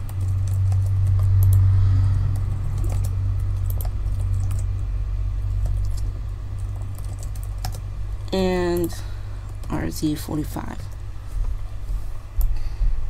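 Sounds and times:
steady low hum: 0.0 - 13.0
keyboard keys clicking: 5.6 - 7.8.

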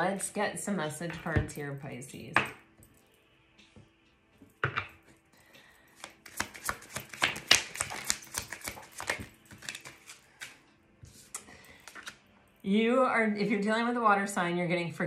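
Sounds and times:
card taps: 6.0 - 10.6
cards being shuffled: 6.0 - 12.2.

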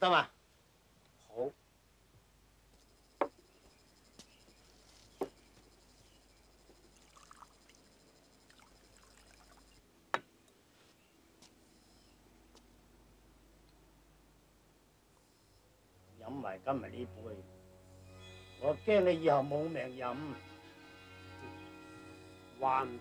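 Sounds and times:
wine pouring: 6.9 - 9.8
porcelain cups clinking: 7.0 - 7.5.

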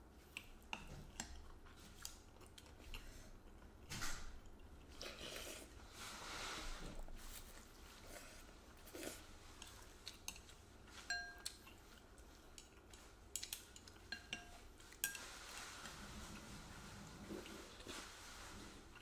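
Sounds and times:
utensils clinking on ceramic bowl: 10.3 - 11.7, 13.7 - 15.4.

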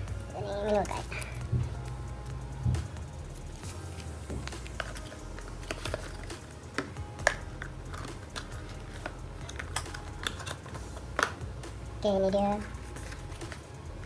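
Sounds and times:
paper packaging tapping and rustling: 3.6 - 11.4.

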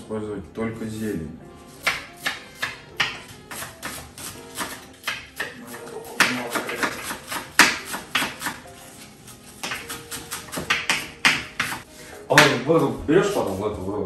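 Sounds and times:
knives chopping on cutting boards: 1.8 - 12.9.

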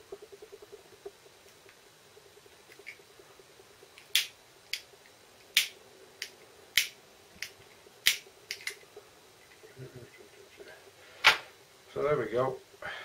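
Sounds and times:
lighter clicking: 4.0 - 4.8, 5.5 - 8.8.

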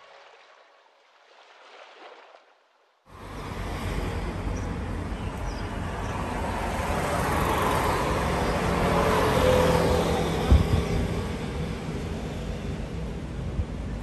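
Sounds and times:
bus engine hum: 3.1 - 14.0
road traffic: 3.1 - 14.0.

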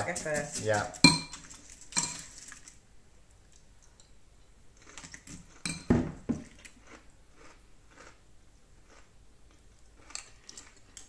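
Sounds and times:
metal spoon clinking against bowl: 1.0 - 2.3, 5.6 - 5.9.

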